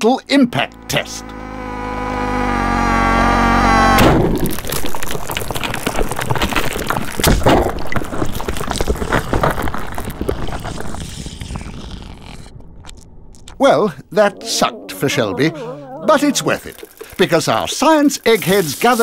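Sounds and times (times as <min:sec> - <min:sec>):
toy car crash hit: 0:04.0 - 0:04.8
crackling and wet splattering: 0:04.0 - 0:13.6, 0:16.0 - 0:19.0.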